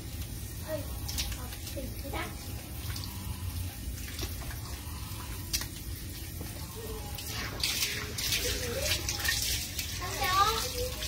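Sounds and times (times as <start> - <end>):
hands scrubbing wet dog coat: 7.2 - 11.0.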